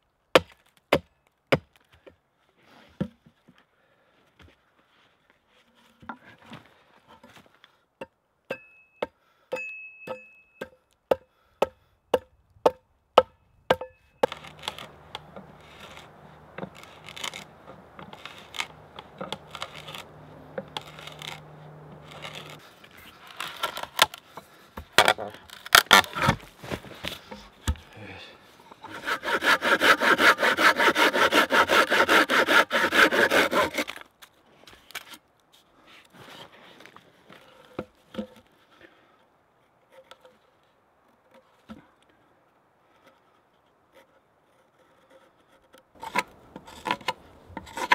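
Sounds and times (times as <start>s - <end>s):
axe chopping log: 11.1s - 22.7s
hand saw cutting wood: 14.2s - 24.3s, 28.8s - 34.0s, 44.0s - 47.9s
scraping and rubbing on wood: 14.2s - 24.5s, 28.8s - 34.0s, 42.9s - 47.9s.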